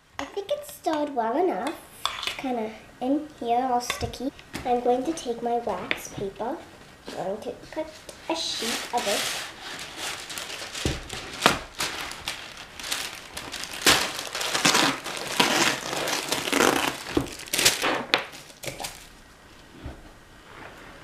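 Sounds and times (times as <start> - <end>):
wax paper crinkling: 7.9 - 19.3.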